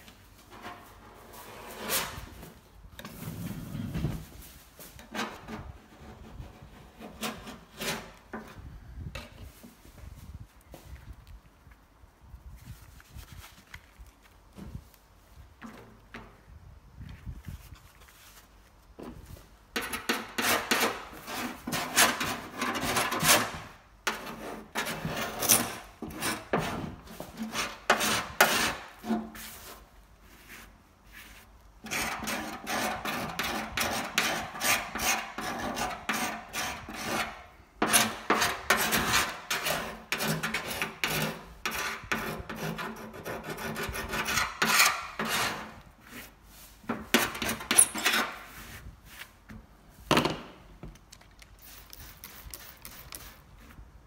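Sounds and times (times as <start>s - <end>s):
hand tool rasping on metal: 31.8s - 46.3s.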